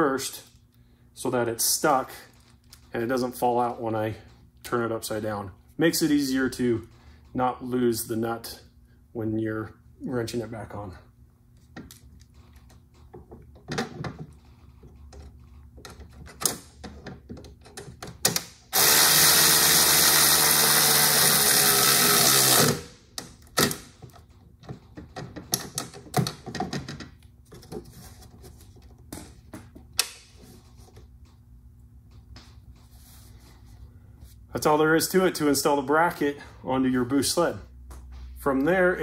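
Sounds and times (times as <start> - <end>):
cordless ratchet motor running: 18.7 - 23.0.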